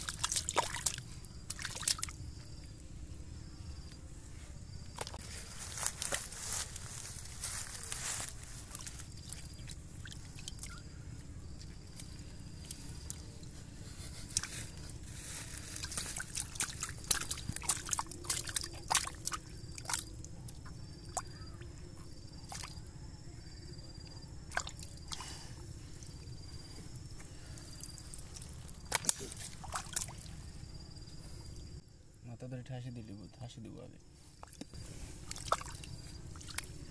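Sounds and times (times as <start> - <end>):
hands splashing in muddy water: 0.0 - 2.2, 15.7 - 20.1, 28.1 - 30.3, 35.2 - 36.8.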